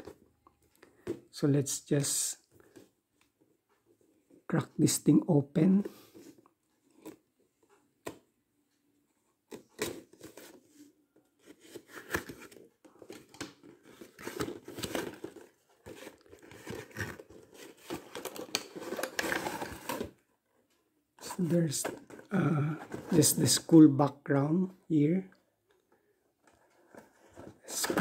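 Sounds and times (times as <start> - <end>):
cardboard and plastic rustling: 9.4 - 23.4, 26.4 - 28.0.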